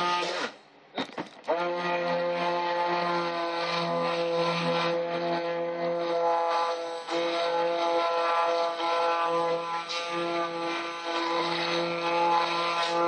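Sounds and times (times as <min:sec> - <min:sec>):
stick blender motor: 0:00.0 - 0:00.6, 0:01.4 - 0:13.0.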